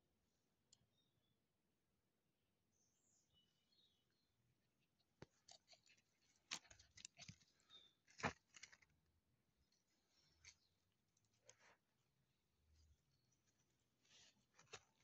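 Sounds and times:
faint clicks and rustles: 0:05.1 - 0:09.0, 0:13.3 - 0:15.0.

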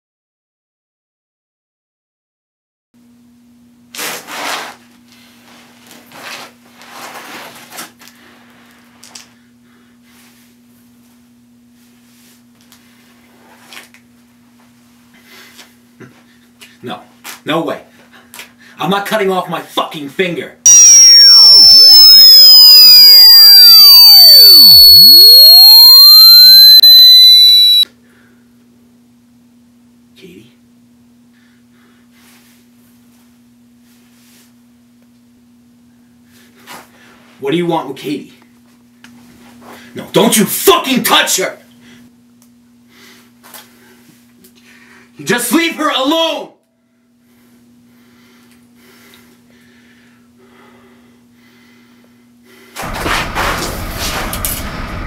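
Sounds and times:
whistling sweeps: 0:20.7 - 0:27.8
piercing electronic alarm tone: 0:20.7 - 0:27.9
steady low hum: 0:46.8 - 0:55.0.

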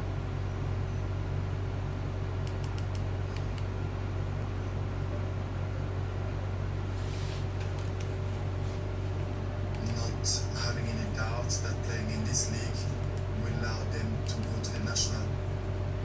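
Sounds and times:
low hum with fan hiss: 0:00.0 - 0:16.0
light clicks: 0:02.4 - 0:03.7, 0:14.2 - 0:15.0.

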